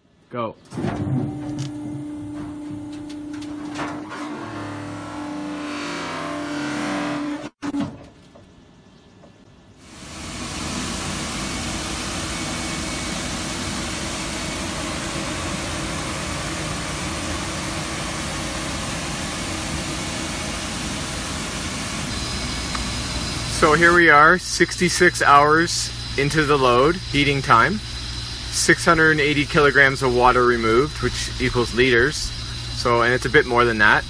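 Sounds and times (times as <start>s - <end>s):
machine hum with held tone: 0.7s - 7.9s, 9.7s - 34.0s
kiln machinery rushing noise: 9.8s - 34.0s.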